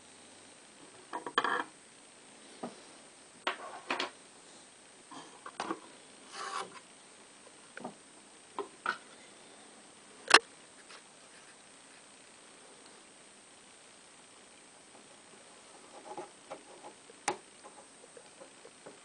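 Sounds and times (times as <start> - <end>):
wood knocking and scraping on wood: 15.8 - 19.0.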